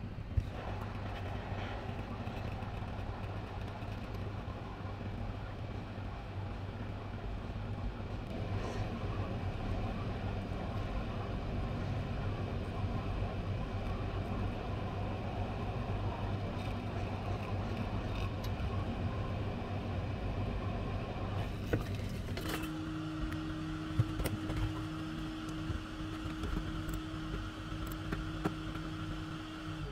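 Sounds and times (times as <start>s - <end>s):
electric fan whining: 8.0s - 29.9s
hot air station blowing: 8.3s - 17.3s, 21.1s - 29.9s.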